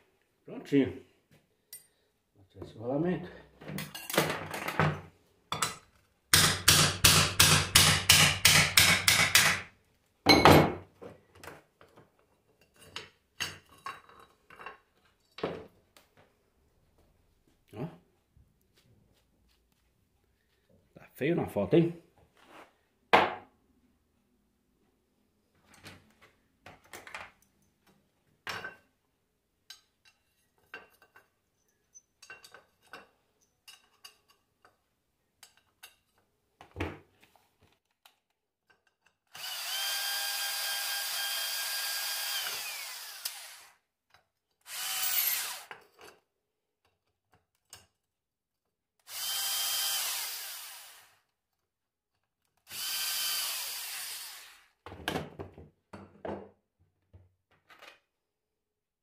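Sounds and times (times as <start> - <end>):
power tool running: 39.4 - 43.8, 44.7 - 45.7, 49.1 - 51.2, 52.7 - 54.7.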